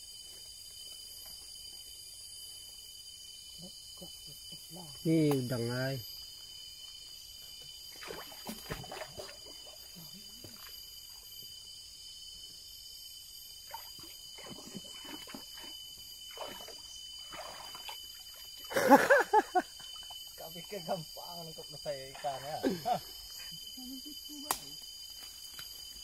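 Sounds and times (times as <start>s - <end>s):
insect buzzing: 0.0s - 26.0s
water splashes: 7.9s - 10.7s, 13.6s - 19.1s.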